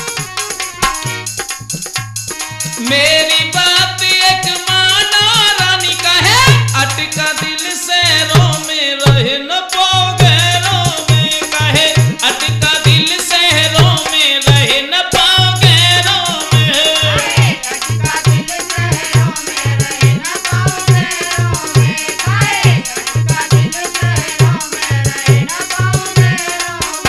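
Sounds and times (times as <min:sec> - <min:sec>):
fast steady percussion: 0:00.0 - 0:27.0
low drum beats: 0:00.8 - 0:02.2, 0:10.0 - 0:26.4.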